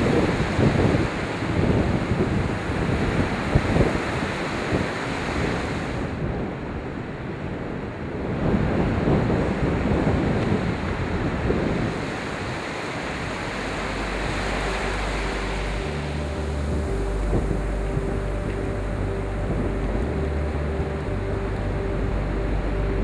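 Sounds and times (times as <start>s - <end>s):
ocean surf breaking on beach: 0.0s - 23.0s
wind buffeting microphone: 0.0s - 23.0s
low steady hum: 10.4s - 23.0s.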